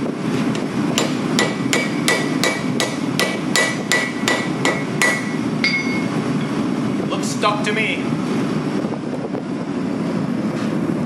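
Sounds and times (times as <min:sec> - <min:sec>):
steady low hum: 0:00.0 - 0:11.0
hammer striking steel on anvil: 0:01.0 - 0:06.1.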